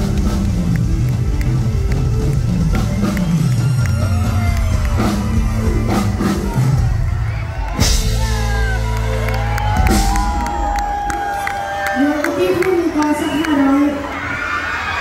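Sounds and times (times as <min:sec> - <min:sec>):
deep bass: 0:00.0 - 0:11.5
drum kit beat: 0:00.0 - 0:11.8
live band music through speakers: 0:00.0 - 0:14.0
crowd whooping: 0:01.4 - 0:15.0.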